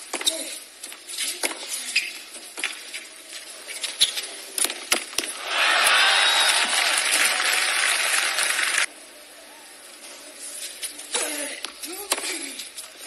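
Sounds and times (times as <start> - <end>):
crowd applause and cheering: 5.3 - 8.9.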